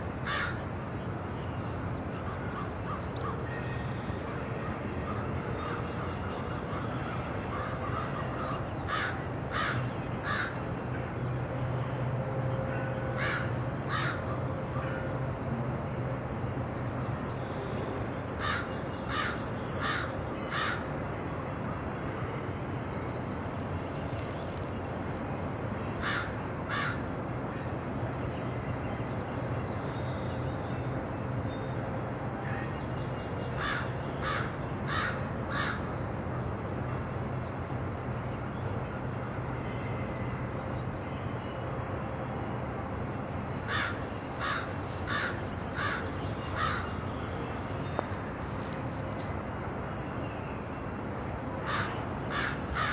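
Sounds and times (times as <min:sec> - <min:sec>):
crows cawing: 0:00.2 - 0:00.6, 0:06.7 - 0:10.6, 0:13.2 - 0:14.3, 0:18.4 - 0:20.9, 0:26.0 - 0:27.0, 0:33.6 - 0:35.8, 0:43.7 - 0:46.9, 0:51.7 - 0:52.9.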